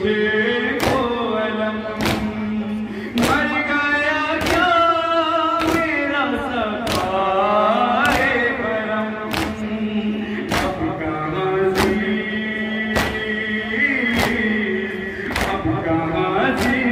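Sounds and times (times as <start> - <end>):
men chanting: 0.0 - 16.9
chest-beating slaps: 10.5 - 10.8, 11.8 - 12.0, 15.3 - 15.6, 16.5 - 16.9.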